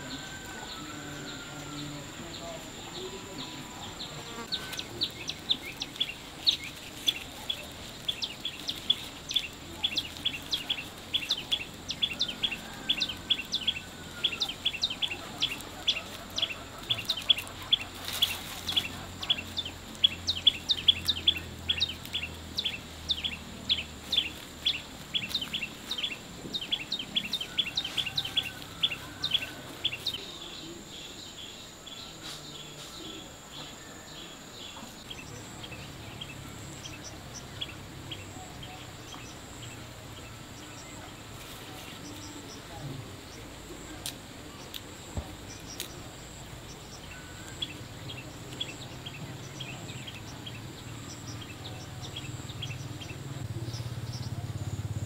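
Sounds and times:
bird chirping: 0:00.0 - 0:55.0
faint steady high tone: 0:25.9 - 0:39.0.

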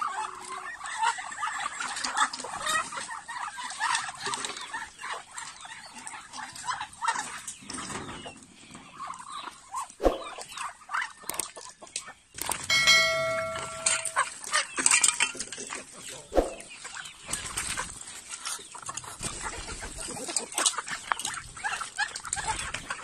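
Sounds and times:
ringing chime: 0:12.6 - 0:14.2.

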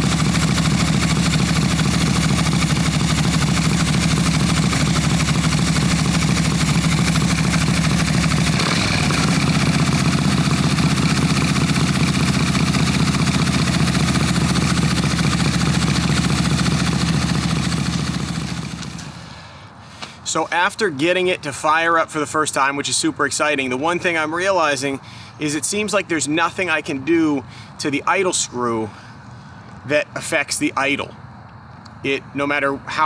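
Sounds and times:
motorcycle engine high idle: 0:00.0 - 0:19.3.

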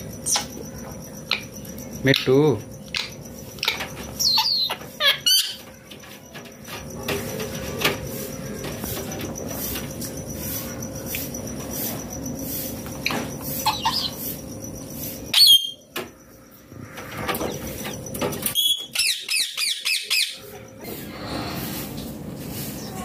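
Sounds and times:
parakeet chattering calls: 0:01.2 - 0:05.6, 0:13.0 - 0:14.4, 0:15.3 - 0:15.8, 0:18.6 - 0:20.5.

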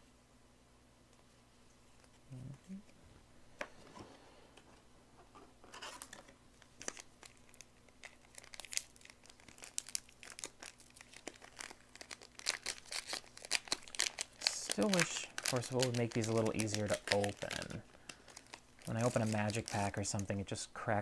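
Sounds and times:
foil wrapper crinkling and tearing: 0:05.9 - 0:20.4.

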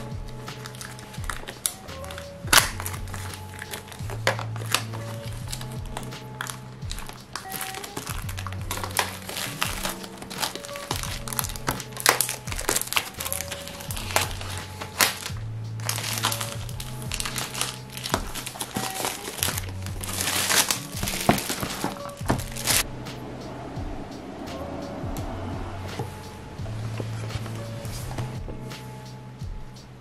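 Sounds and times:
plastic shrink-wrap crinkling: 0:00.0 - 0:22.8
background music: 0:00.0 - 0:30.0.

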